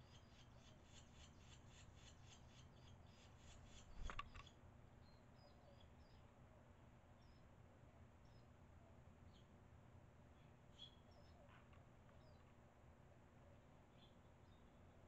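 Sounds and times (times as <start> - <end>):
thin high bird calls: 0.0 - 4.6.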